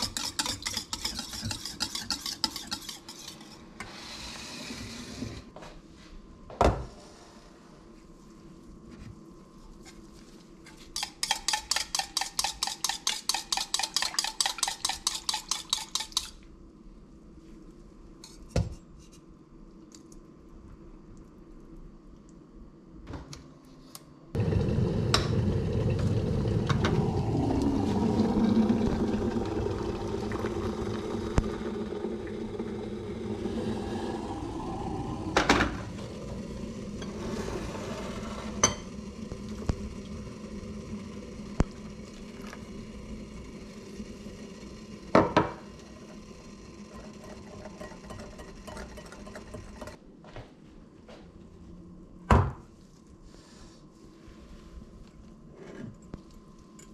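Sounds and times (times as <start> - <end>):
metal whisk against dishes: 0.0 - 3.6, 11.0 - 16.4.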